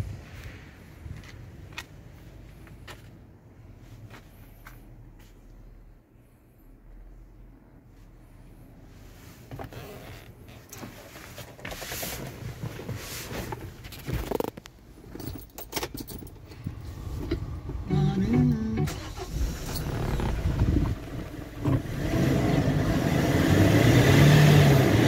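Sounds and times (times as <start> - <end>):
keys jangling and clicking: 15.1 - 16.5.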